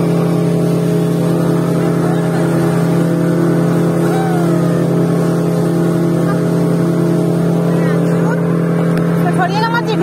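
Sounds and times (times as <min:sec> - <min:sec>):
speedboat engine drone: 0:00.0 - 0:10.0
water rushing along hull: 0:00.0 - 0:10.0.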